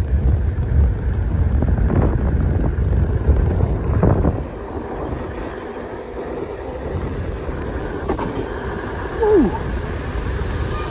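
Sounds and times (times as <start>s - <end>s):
wind buffeting microphone: 0.0s - 10.9s.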